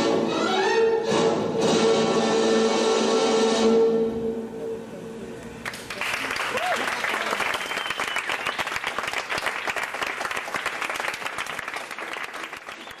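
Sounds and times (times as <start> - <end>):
audience applauding: 5.6 - 13.0.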